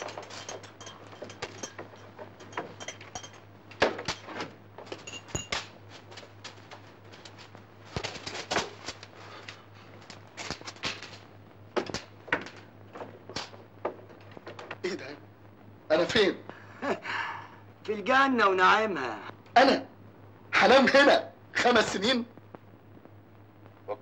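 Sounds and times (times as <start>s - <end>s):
keys jangling at a lock: 0.0s - 3.4s
metallic clanks and knocks: 0.0s - 5.7s
low steady hum: 0.0s - 24.0s.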